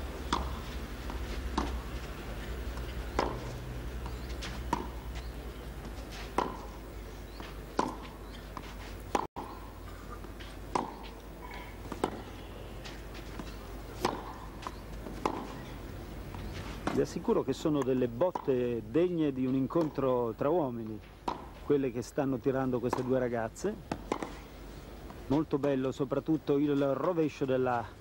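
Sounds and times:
low broadcast hum: 0:00.0 - 0:28.0
tennis ball struck by racquets: 0:00.2 - 0:01.9, 0:02.7 - 0:09.7, 0:10.7 - 0:11.2, 0:11.8 - 0:18.6, 0:21.2 - 0:21.6, 0:22.8 - 0:23.3, 0:23.9 - 0:24.4.

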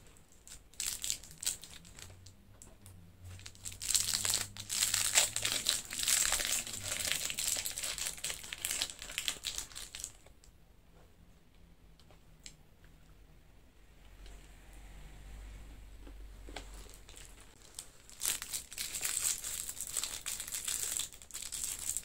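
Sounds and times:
candy wrapper crinkling: 0:00.3 - 0:02.2, 0:03.3 - 0:10.3, 0:16.8 - 0:22.0.

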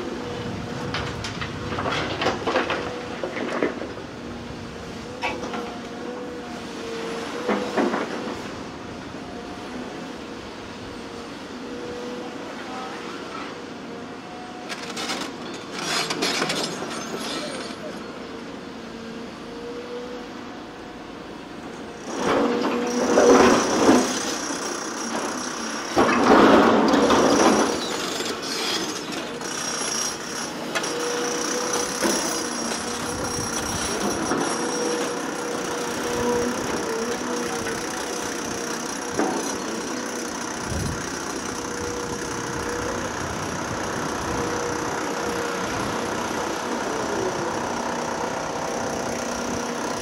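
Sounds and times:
excavator engine and hydraulics: 0:00.0 - 0:50.0.

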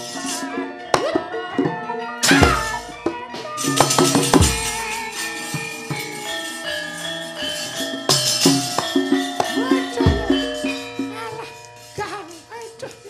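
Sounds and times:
gamelan metallophones and gongs: 0:02.2 - 0:12.5
metal plates clashing: 0:02.2 - 0:13.0.

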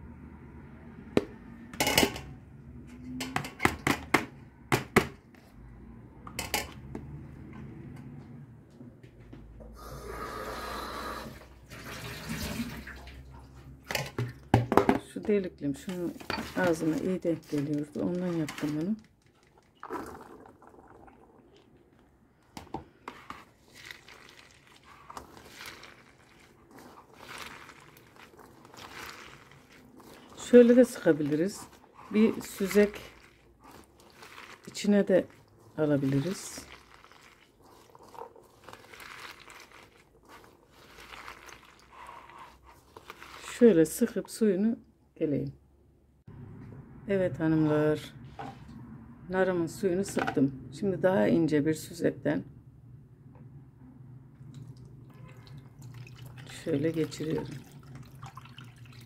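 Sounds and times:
wet crunching of crushed seeds: 0:23.4 - 0:44.0.

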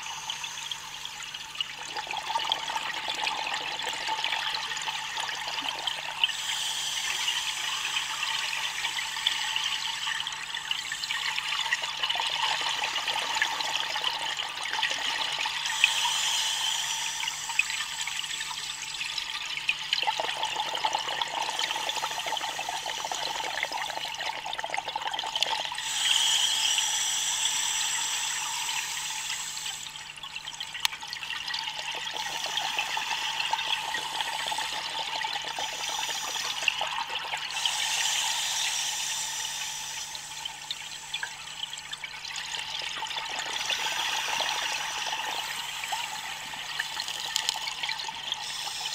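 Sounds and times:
underwater regulator breathing bubbles: 0:19.7 - 0:30.0, 0:31.5 - 0:48.9.

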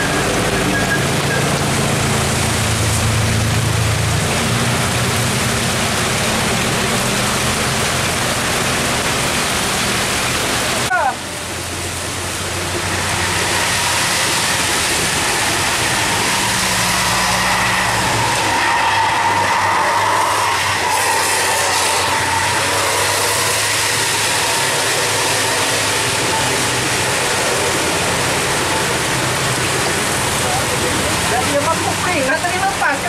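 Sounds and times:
bus engine humming: 0:00.0 - 0:33.0
heavy rain hissing: 0:00.0 - 0:33.0
traffic on wet road: 0:00.0 - 0:33.0.

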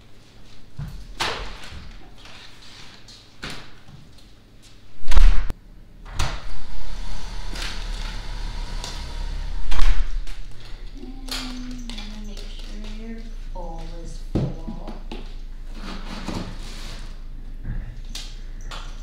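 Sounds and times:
steady low rumble: 0:05.0 - 0:14.3
heavy slam: 0:06.1 - 0:10.6.

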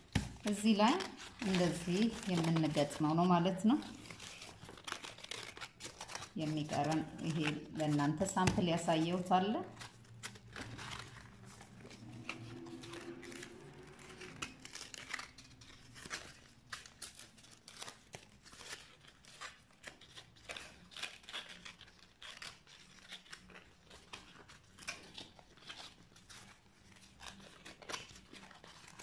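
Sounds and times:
stiff paper rustling and crackling: 0:00.0 - 0:29.0.

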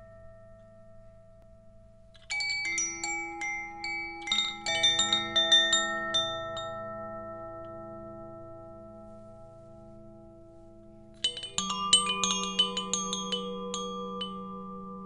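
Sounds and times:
wind chime notes ringing: 0:02.3 - 0:07.8, 0:11.2 - 0:15.0.

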